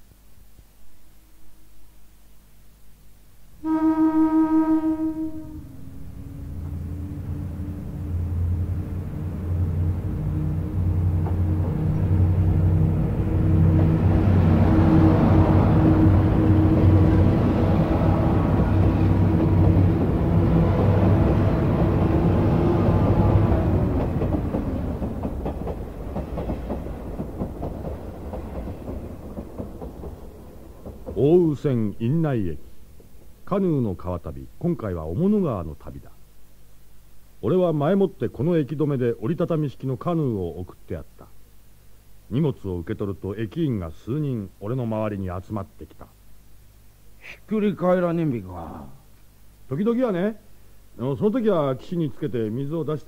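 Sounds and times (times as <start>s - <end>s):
train horn: 3.6s - 24.0s
train rumbling: 3.7s - 32.3s
train wheels clickety-clack: 11.2s - 11.9s, 19.4s - 20.4s, 23.3s - 31.5s.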